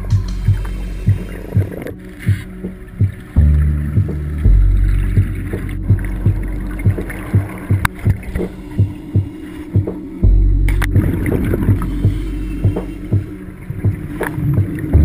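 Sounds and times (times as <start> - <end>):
low regular throb: 0.0 - 15.0.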